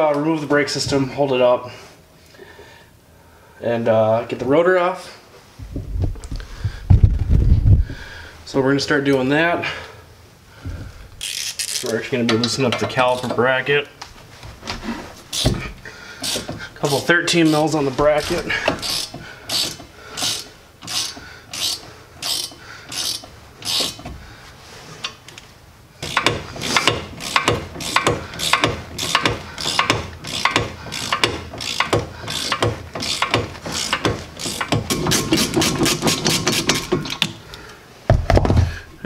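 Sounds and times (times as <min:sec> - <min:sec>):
ratchet wrench clicking: 0:11.2 - 0:11.9, 0:16.2 - 0:16.5, 0:17.5 - 0:24.0, 0:26.0 - 0:37.3.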